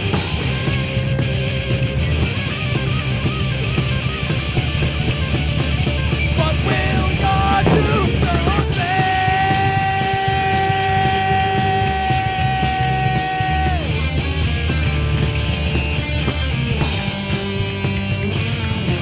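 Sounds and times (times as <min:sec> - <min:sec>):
heavy rock band playing: 0:00.0 - 0:19.0
long high guitar note bending: 0:06.3 - 0:10.5.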